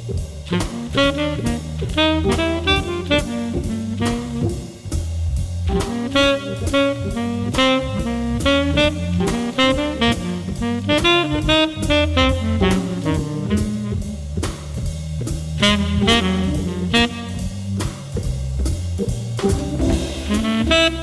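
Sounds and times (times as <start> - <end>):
drum kit beat: 0.0 - 21.0
saxophone lead: 0.5 - 4.9, 5.7 - 14.2, 15.6 - 17.8, 19.4 - 21.0.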